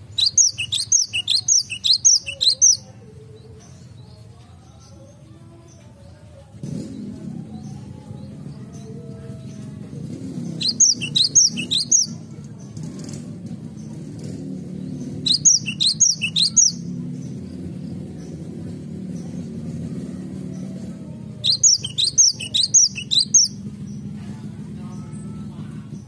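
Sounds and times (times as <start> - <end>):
bird singing high notes: 0.1 - 2.8, 10.6 - 12.2, 15.0 - 16.9, 21.4 - 23.6.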